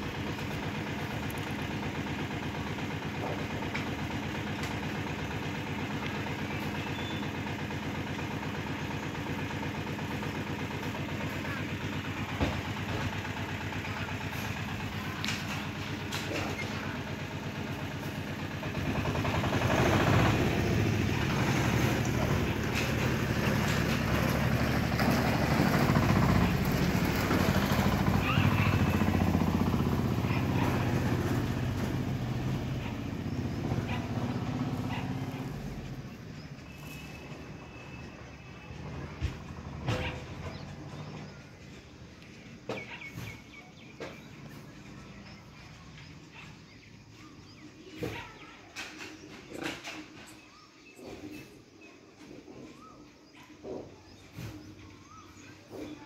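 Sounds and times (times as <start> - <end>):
motor engine running: 0.0 - 48.5.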